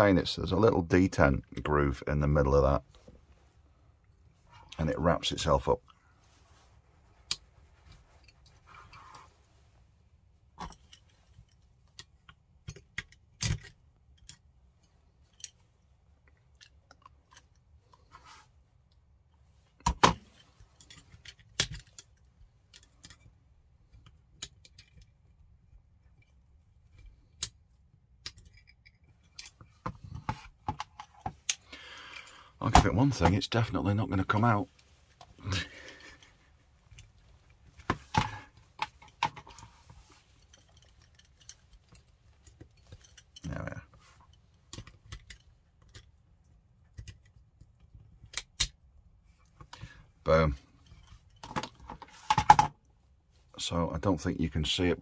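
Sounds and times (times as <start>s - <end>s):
metal parts clicking and tapping: 10.6s - 18.2s, 19.8s - 33.5s, 34.3s - 48.8s.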